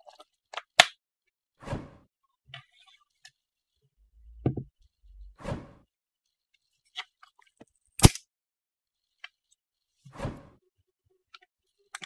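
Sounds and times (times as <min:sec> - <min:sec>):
object scraping on a table: 0:04.2 - 0:05.9.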